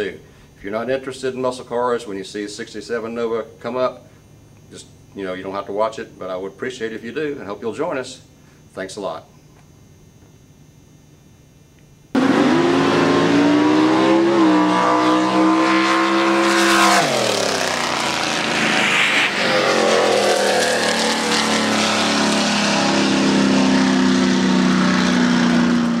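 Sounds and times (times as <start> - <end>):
racing car engine at high revs: 12.2 - 26.0
rough engine noise: 12.2 - 26.0.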